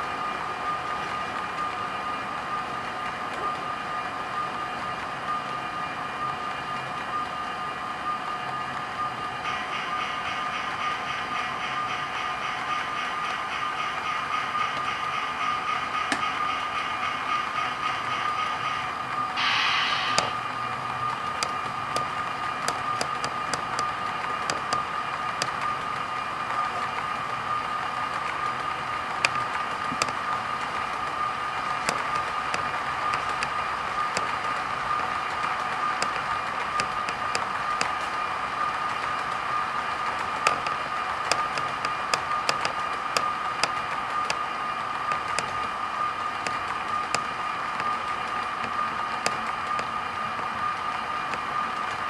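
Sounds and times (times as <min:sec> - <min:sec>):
constant high hum: 0:00.0 - 0:52.0
model train wheels clattering: 0:29.2 - 0:38.2, 0:40.0 - 0:45.8.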